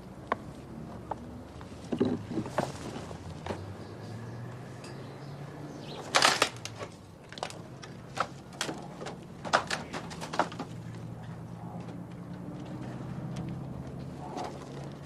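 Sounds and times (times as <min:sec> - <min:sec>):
twigs crackling and snapping: 0:06.0 - 0:15.0.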